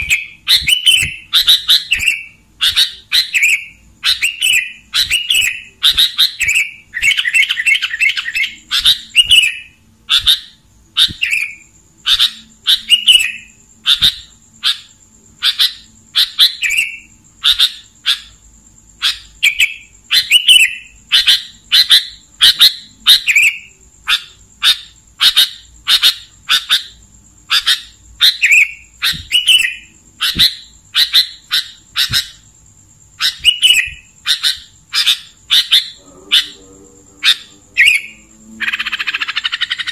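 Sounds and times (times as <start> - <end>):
bird chirping: 0.0 - 39.9.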